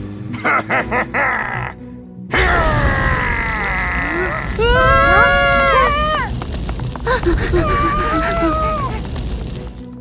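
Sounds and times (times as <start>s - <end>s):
cartoon flame blast rumble: 2.4s - 10.0s.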